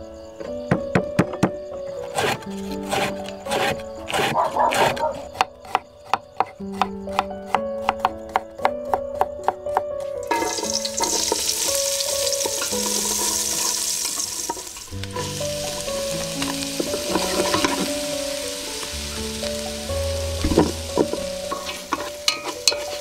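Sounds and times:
soft background music: 0.0 - 23.0
knife chopping on wooden board: 2.2 - 8.5
oil sizzling in pot: 10.2 - 23.0.

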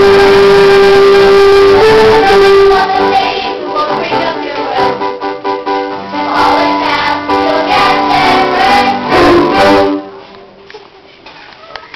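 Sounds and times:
instrumental accompaniment: 0.0 - 10.6
young performers singing: 2.2 - 5.1, 6.1 - 10.0.

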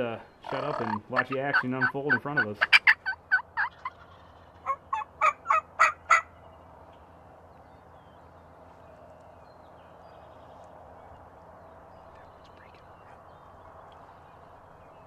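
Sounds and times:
faint background noise: 0.0 - 15.0
turkeys gobbling: 0.4 - 6.3.

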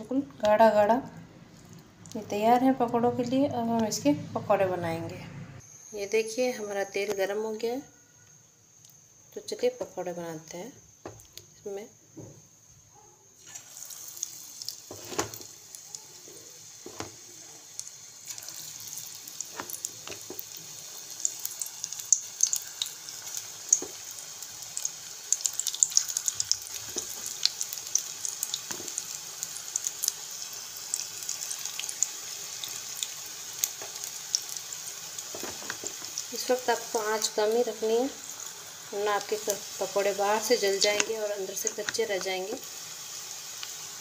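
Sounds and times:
batter sizzling in hot oil: 13.4 - 44.0.

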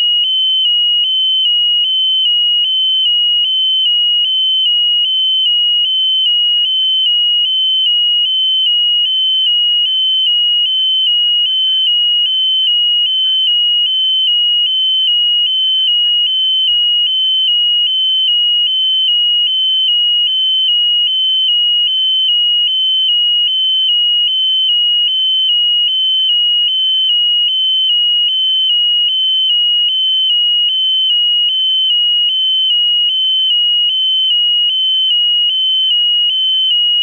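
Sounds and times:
piezo alarm buzzer tone: 0.0 - 37.0.

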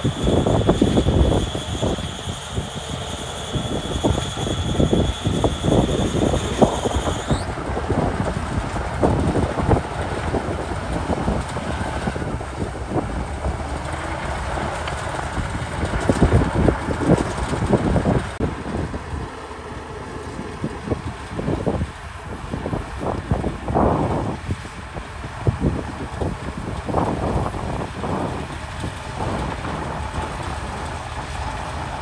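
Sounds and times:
bulldozer diesel engine: 0.0 - 32.0
high whine: 0.0 - 32.0.

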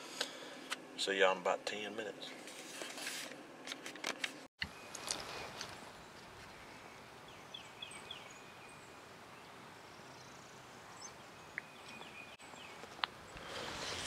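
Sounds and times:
small birds chirping: 4.6 - 14.0.

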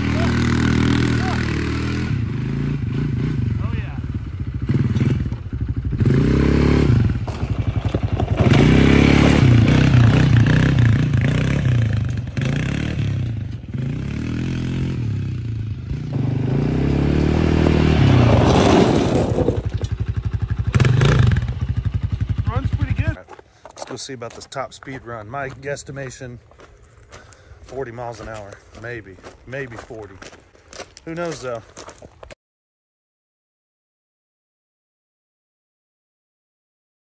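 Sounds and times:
quad engine revving: 0.0 - 23.2
gravel under tyres: 0.0 - 32.4.

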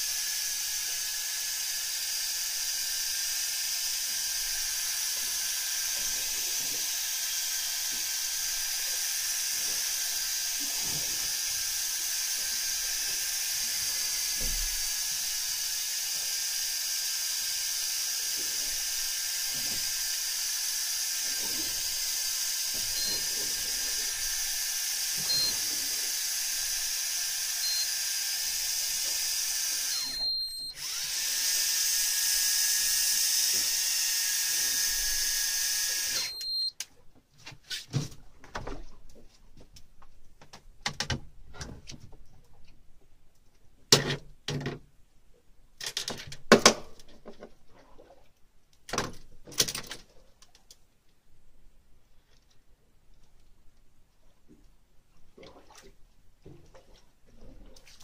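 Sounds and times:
fishing reel motor whirring: 0.0 - 36.7
short high beeps: 23.0 - 23.2, 25.3 - 25.6, 27.6 - 27.9, 29.9 - 30.8, 36.2 - 36.7.

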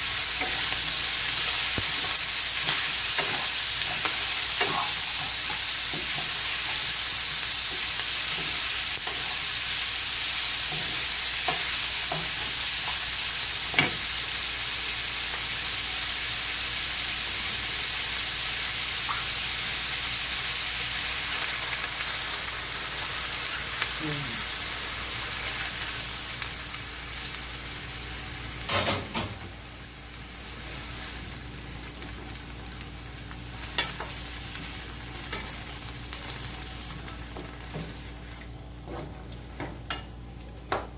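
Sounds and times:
food sizzling in a frying pan: 0.0 - 40.9.

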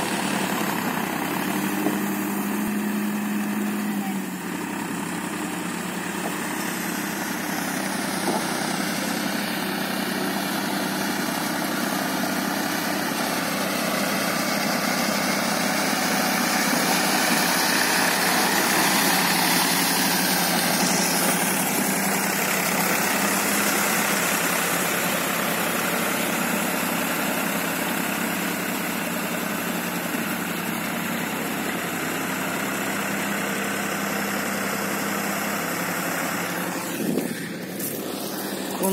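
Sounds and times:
tractor diesel engine running: 0.0 - 38.9.

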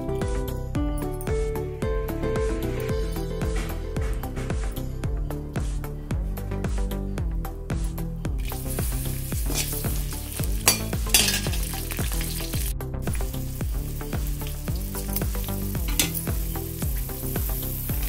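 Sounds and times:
onions and spices sizzling in oil: 8.4 - 18.0.

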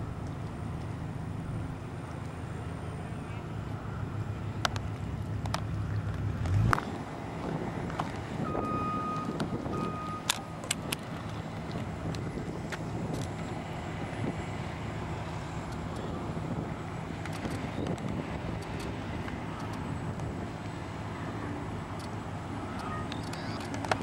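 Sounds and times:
wind: 0.0 - 24.0
sharp clicks: 21.9 - 24.0.

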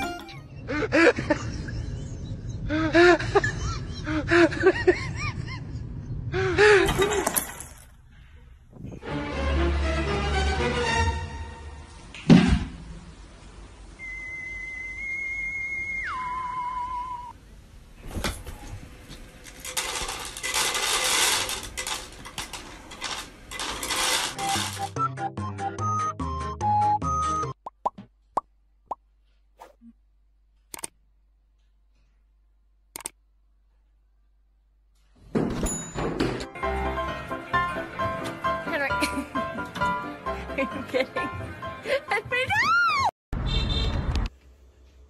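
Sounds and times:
kibble rattling into plastic tray: 19.4 - 24.9.

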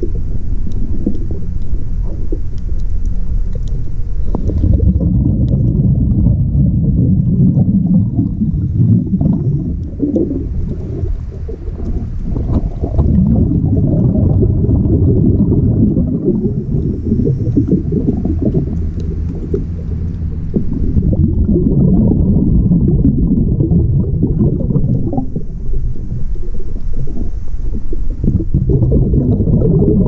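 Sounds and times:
faint high hiss: 0.0 - 4.9, 15.5 - 21.3, 24.4 - 28.8
diver breathing bubbles: 0.0 - 30.0
muffled underwater rumble: 0.0 - 30.0.

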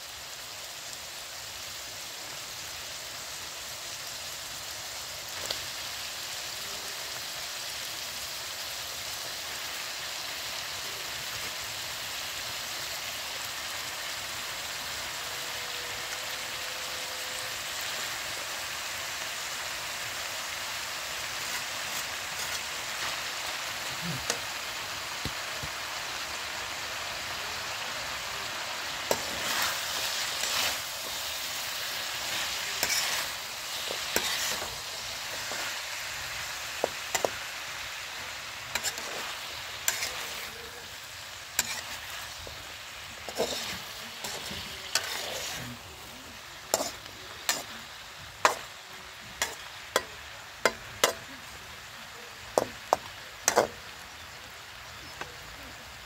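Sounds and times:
food sizzling in a wok: 0.0 - 56.0
metal spatula scraping wok: 21.1 - 24.8, 27.7 - 48.8, 49.4 - 51.3, 52.6 - 53.8.

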